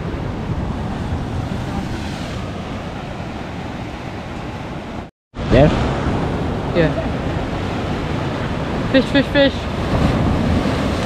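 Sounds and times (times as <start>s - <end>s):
ocean surf breaking on rocks: 0.0s - 11.0s
wind buffeting microphone: 0.0s - 11.0s.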